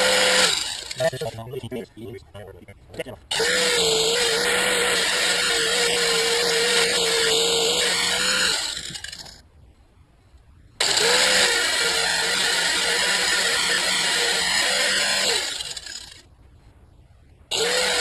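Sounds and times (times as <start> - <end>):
angle grinder grinding metal: 0.0 - 1.3, 3.3 - 9.4, 10.8 - 16.2, 17.5 - 18.0.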